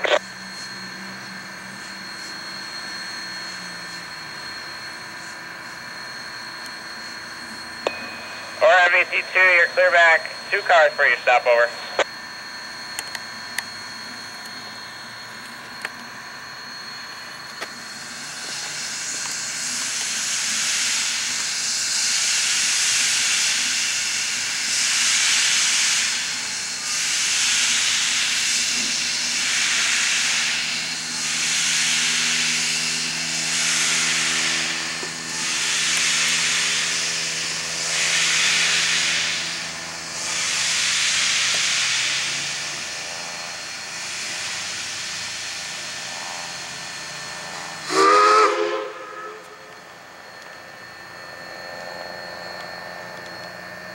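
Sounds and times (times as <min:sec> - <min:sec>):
steam locomotive hissing: 0:17.2 - 0:53.9.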